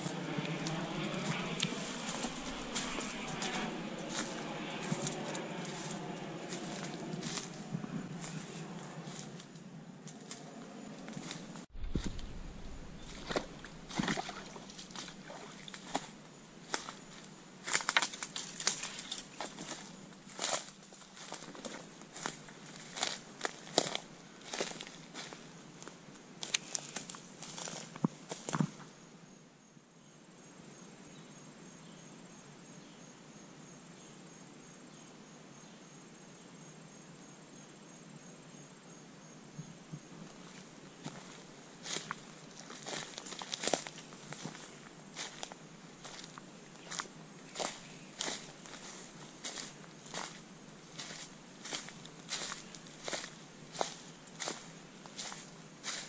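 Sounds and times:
crickets chirping: 0:00.0 - 0:56.0
steady swamp background hiss: 0:00.0 - 0:56.0
sloshing through shallow water: 0:11.9 - 0:16.2
vegetation snapping and crackling: 0:17.7 - 0:19.8.

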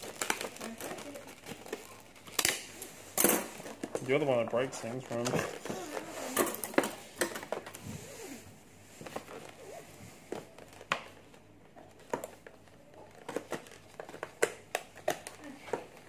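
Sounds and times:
plastic crinkling: 0:00.0 - 0:08.2, 0:09.0 - 0:16.0.

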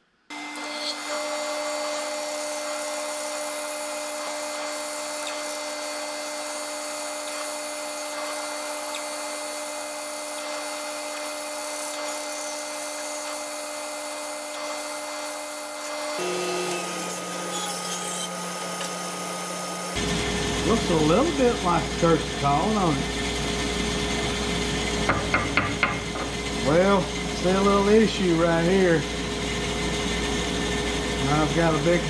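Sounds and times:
bandsaw motor hum: 0:00.3 - 0:32.0
blade rasping in wood: 0:00.6 - 0:20.0.

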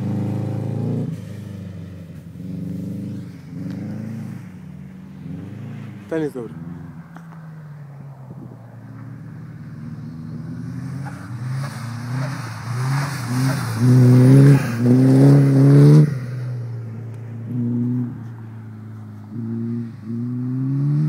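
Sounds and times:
car engine revving hard: 0:00.0 - 0:07.3, 0:09.0 - 0:16.8, 0:19.3 - 0:21.0.

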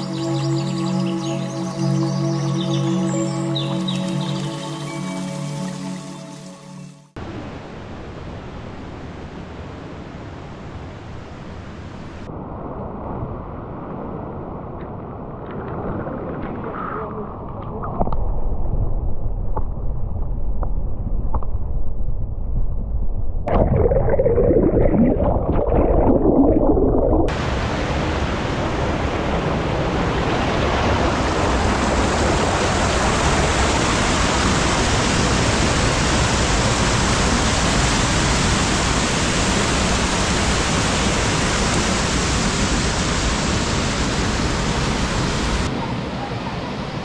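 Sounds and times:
flowing water rushing: 0:23.5 - 0:47.0.

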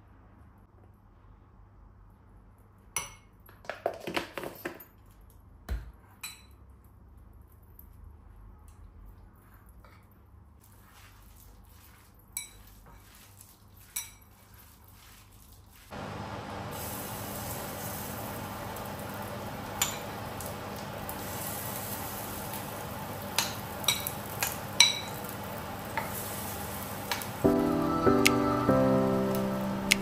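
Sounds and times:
hands squishing batter: 0:10.6 - 0:15.9
batter sizzling in oil: 0:10.6 - 0:30.0.

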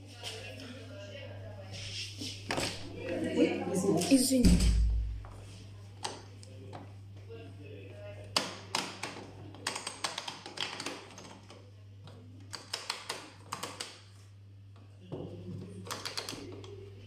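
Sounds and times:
steady low hum: 0:00.8 - 0:08.4.

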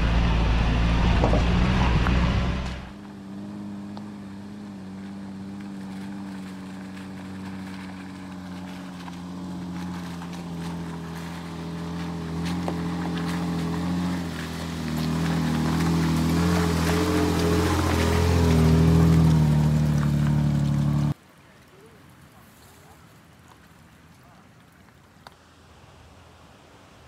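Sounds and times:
truck engine running at low revs: 0:00.0 - 0:21.2.

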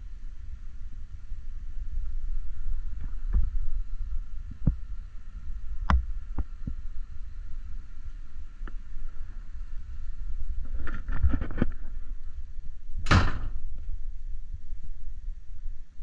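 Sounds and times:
camera handling rumble: 0:10.6 - 0:11.9.

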